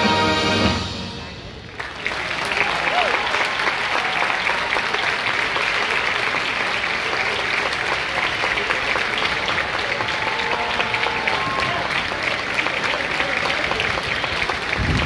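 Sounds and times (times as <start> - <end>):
stadium crowd applauding: 1.5 - 15.0.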